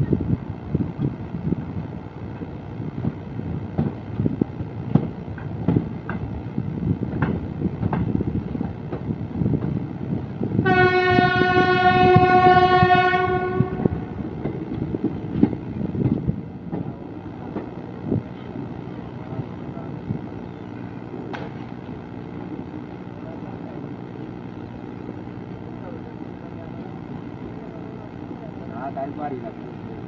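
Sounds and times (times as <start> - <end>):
train wheels clicking over rail joints: 0.9 - 10.2, 14.2 - 20.3
train horn blast: 10.6 - 14.3.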